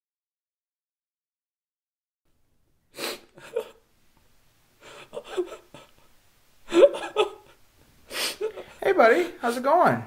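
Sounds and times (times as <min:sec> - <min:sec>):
person gasping and whimpering: 0:04.8 - 0:06.1, 0:06.7 - 0:08.8.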